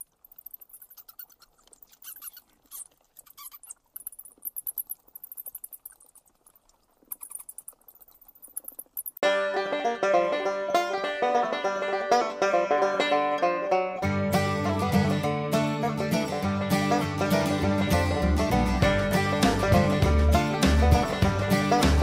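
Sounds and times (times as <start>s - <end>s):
bats squeaking and chittering: 0.0s - 9.2s
banjo music: 9.2s - 22.0s.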